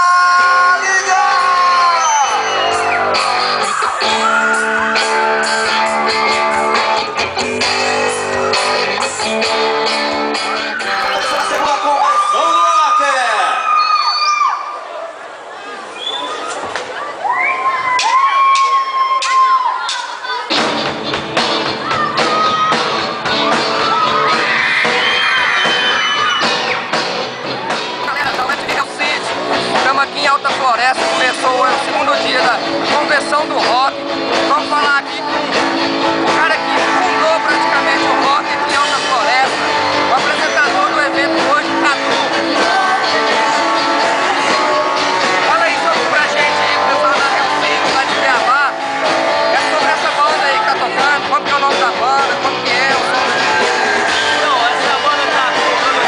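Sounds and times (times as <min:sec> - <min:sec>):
live rock band playing: 0:02.4 - 0:11.8, 0:20.5 - 0:33.0, 0:33.6 - 0:56.0
person singing: 0:10.8 - 0:11.8, 0:28.0 - 0:28.9.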